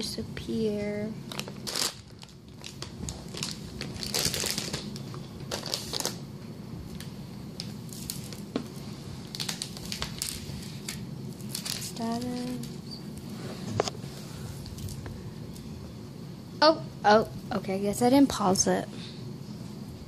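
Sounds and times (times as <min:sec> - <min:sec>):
crinkly rustling and handling: 0:00.5 - 0:06.2, 0:06.9 - 0:15.7.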